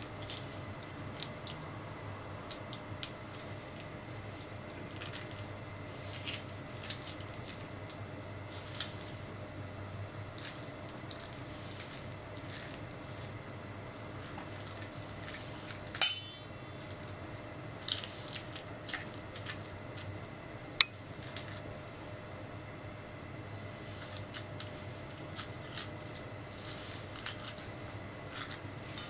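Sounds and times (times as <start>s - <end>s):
spoon clinking against metal bowl: 16.0s - 16.8s.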